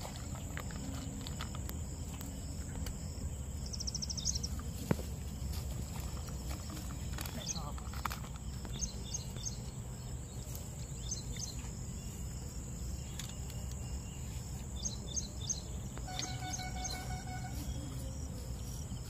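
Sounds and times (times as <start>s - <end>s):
insect drone: 0.2s - 19.0s
bird chirps: 13.0s - 18.4s
steady held tone: 16.1s - 17.9s.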